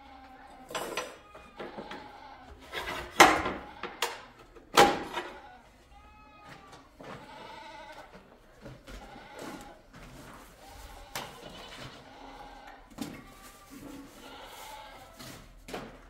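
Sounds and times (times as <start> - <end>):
sheep bleating: 1.2 - 2.6, 5.2 - 8.2, 8.9 - 9.8, 10.6 - 15.2.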